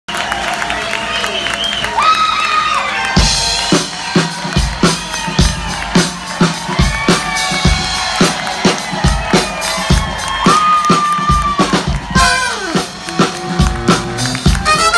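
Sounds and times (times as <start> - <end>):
drum kit beat: 3.1 - 14.9.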